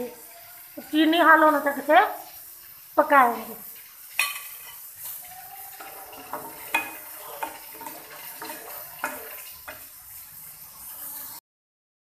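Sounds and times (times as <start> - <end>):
steady hiss: 0.0 - 11.4
spoon clinking against saucepan: 4.1 - 9.9.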